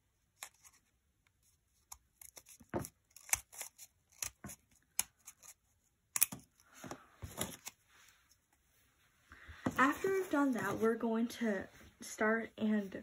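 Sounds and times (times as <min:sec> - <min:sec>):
scissors snipping paper: 0:00.3 - 0:00.9, 0:01.7 - 0:06.6.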